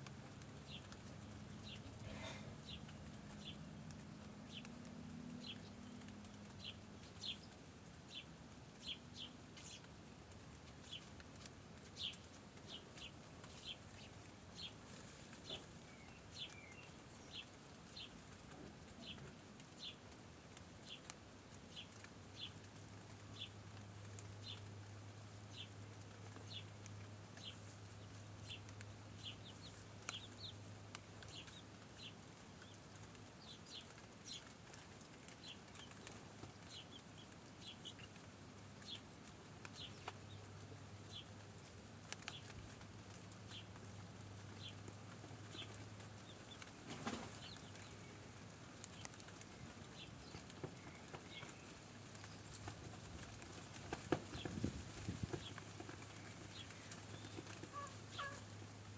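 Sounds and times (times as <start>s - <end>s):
chicks peeping: 0.3s - 9.9s, 25.5s - 58.6s.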